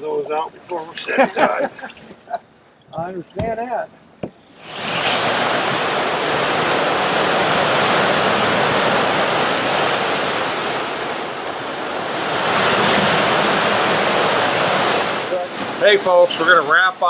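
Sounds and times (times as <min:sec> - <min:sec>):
storm surf breaking over dock: 0:03.0 - 0:17.0.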